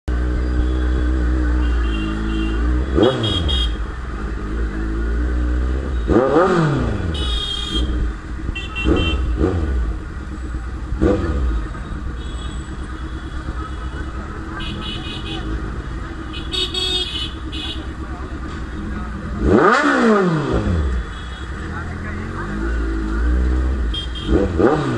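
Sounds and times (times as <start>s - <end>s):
short horn beeps: 0.4s - 3.8s, 7.0s - 9.5s
motorcycle throttle blips: 5.7s - 24.9s
motorcycle engine idling: 7.2s - 19.8s.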